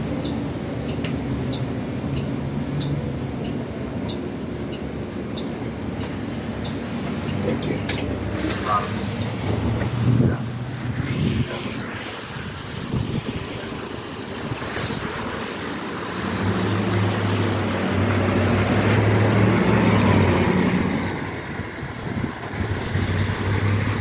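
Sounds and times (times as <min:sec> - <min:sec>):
bus engine hum: 0:00.0 - 0:24.0
tyres hissing on wet pavement: 0:00.0 - 0:24.0
wind on microphone: 0:09.4 - 0:15.3, 0:20.9 - 0:24.0.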